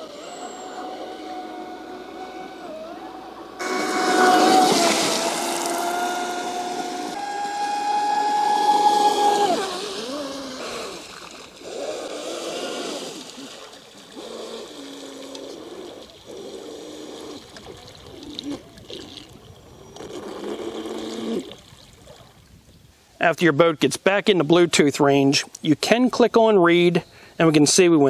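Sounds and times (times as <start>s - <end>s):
electric motor whining: 0.0s - 17.8s
water splashing: 3.6s - 22.6s.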